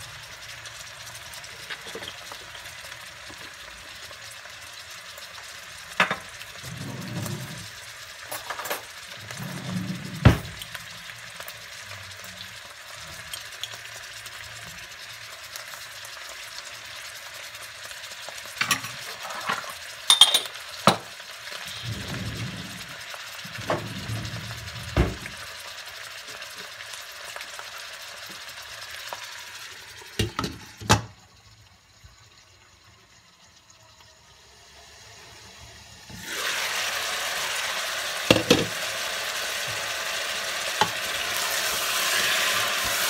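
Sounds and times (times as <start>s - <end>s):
beans sizzling in a pot: 0.0s - 43.0s
glass lid clinking on pot: 20.1s - 20.6s.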